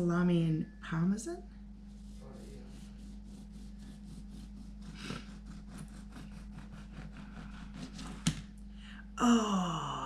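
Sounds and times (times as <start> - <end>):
knife sawing through bread crust: 2.0 - 8.3.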